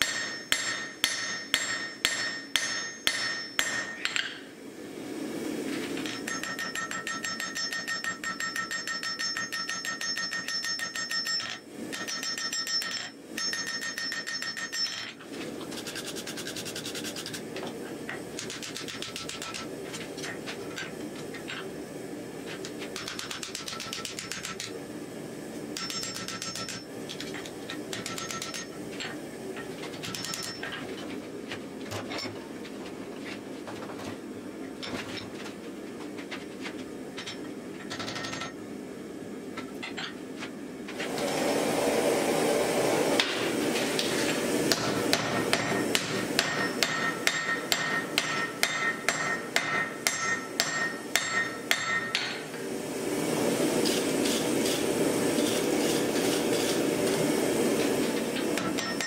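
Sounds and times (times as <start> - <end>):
hammer striking steel on anvil: 0.0 - 4.5, 6.0 - 15.1, 25.8 - 29.2, 30.0 - 30.7, 44.7 - 52.5, 58.5 - 59.0.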